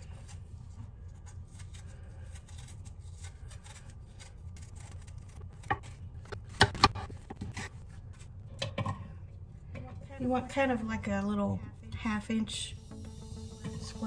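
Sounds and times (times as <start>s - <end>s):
knife peeling apple: 0.0s - 8.3s.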